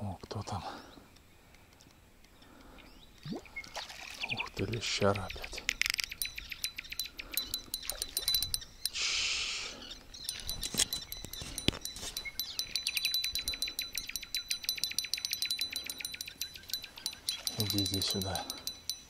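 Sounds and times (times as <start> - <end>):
fishing reel clicking rapidly: 5.7 - 8.9, 10.3 - 19.0.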